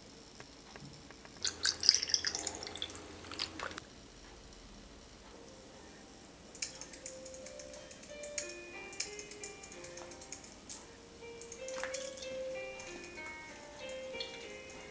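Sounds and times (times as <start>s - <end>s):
ice crackling in a glass: 1.4s - 3.8s
soft music with light ticking: 3.8s - 14.9s.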